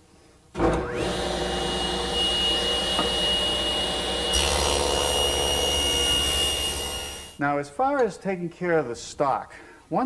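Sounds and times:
table saw whining: 0.7 - 7.4.

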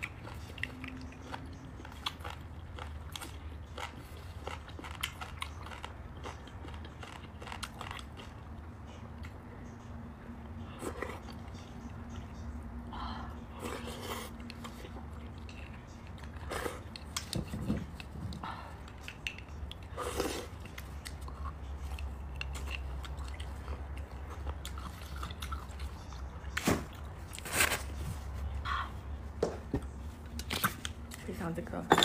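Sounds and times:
wet chewing: 0.0 - 9.4, 13.6 - 27.8.

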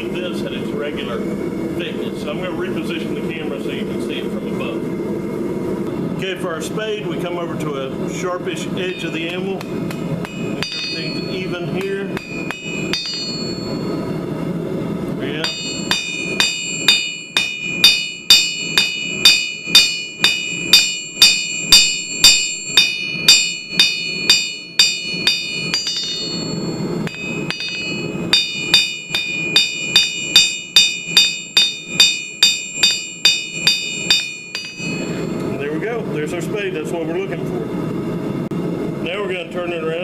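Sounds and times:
hammer striking steel on anvil: 8.8 - 14.0, 15.4 - 35.5.

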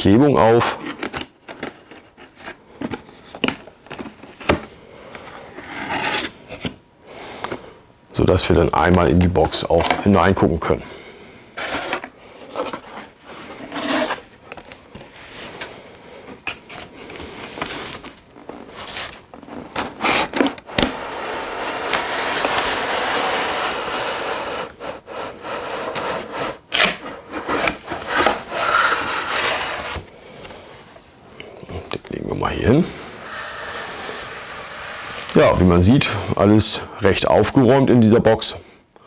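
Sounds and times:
cardboard box scraping: 17.7 - 30.1, 32.9 - 36.2.

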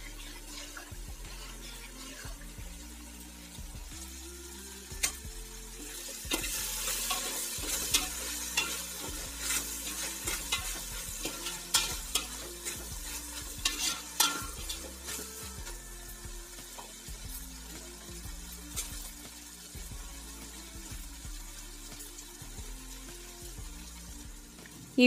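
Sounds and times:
vegetables sizzling in oil: 0.0 - 25.0
metal spoon scraping pot: 6.3 - 15.4.

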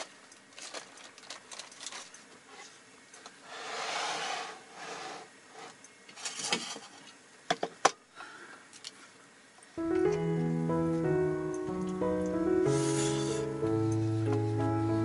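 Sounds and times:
rustle: 0.0 - 7.3.

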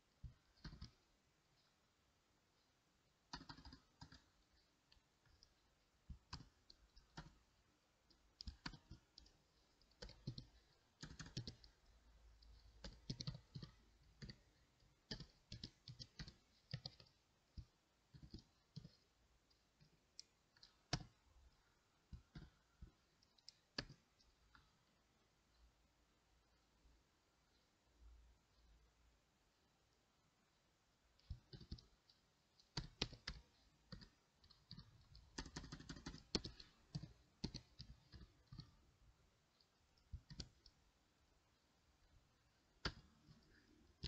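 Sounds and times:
keyboard typing clicks: 0.2 - 1.0, 3.3 - 7.5, 8.1 - 24.7, 31.2 - 38.8, 39.6 - 40.8, 42.8 - 44.0.

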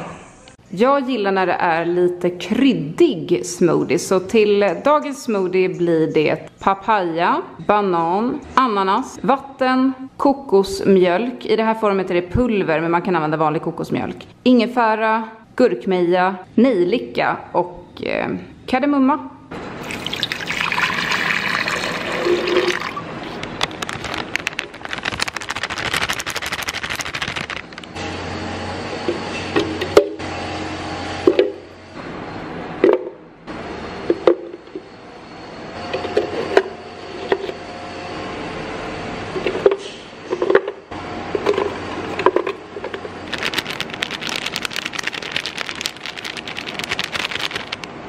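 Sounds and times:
water poured into blender jar: 19.8 - 23.1
plastic bag crackling: 22.7 - 28.0, 43.2 - 47.9
plastic packet crinkling: 22.7 - 28.0, 43.2 - 47.9.

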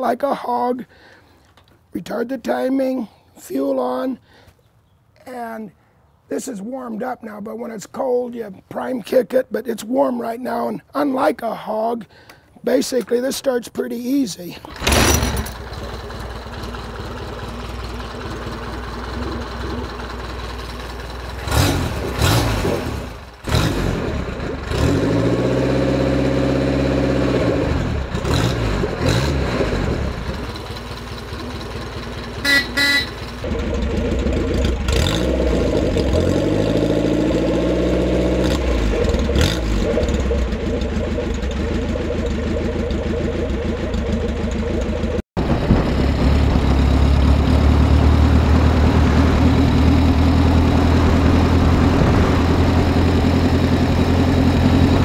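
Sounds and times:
motorcycle engine idling and revving: 14.7 - 55.0
motorcycle horn toots: 32.4 - 33.4.

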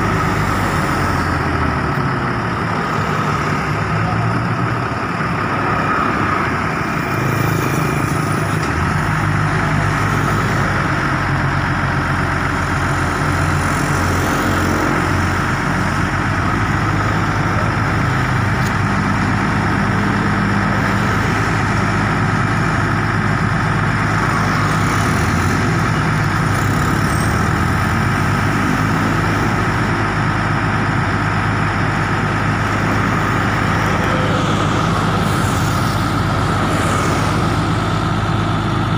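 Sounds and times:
diesel truck engine running: 0.0 - 38.9
steady high whine: 30.9 - 38.9.

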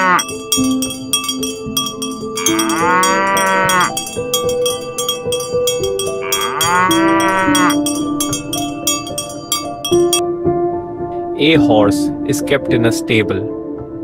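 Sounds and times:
cow mooing: 0.0 - 0.3, 2.4 - 4.1, 6.2 - 8.4
music with ticking beat: 0.0 - 10.2.

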